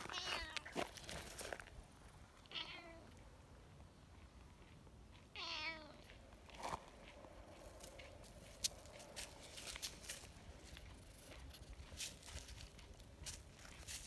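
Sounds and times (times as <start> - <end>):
cat meowing: 0.0 - 0.8, 2.5 - 3.2, 5.4 - 6.0.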